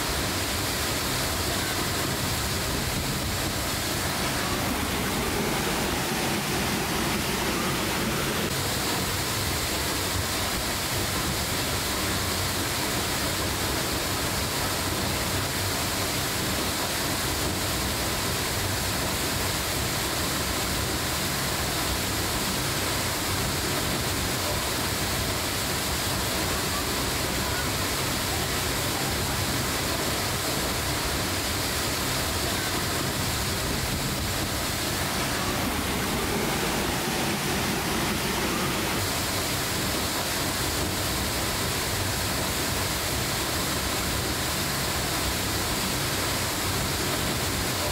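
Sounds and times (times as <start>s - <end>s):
waterfall rushing: 0.0s - 47.9s.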